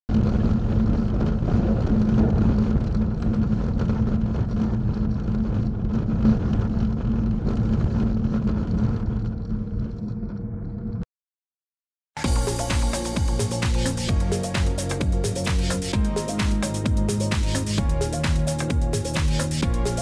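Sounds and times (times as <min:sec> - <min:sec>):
engine drone: 0:12.2 - 0:20.0.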